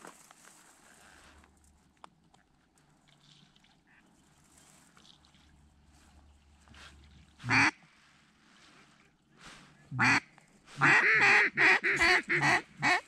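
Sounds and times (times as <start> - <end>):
duck quacks: 7.4 - 7.8, 10.0 - 13.0.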